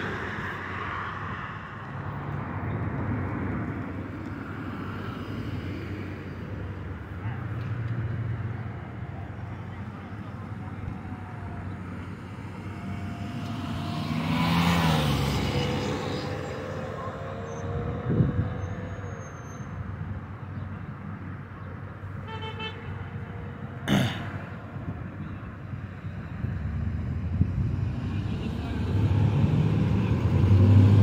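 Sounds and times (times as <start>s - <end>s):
road traffic passing: 0.0s - 31.0s
vehicle passing loudly: 12.2s - 19.2s, 26.4s - 31.0s.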